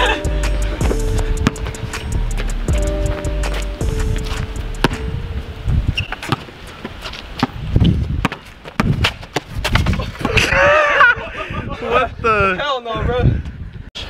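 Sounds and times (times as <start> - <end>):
footsteps and sneaker scuffs: 0.6 - 5.1
basketball bouncing on asphalt: 0.8 - 1.8, 2.4 - 5.2, 5.9 - 10.3.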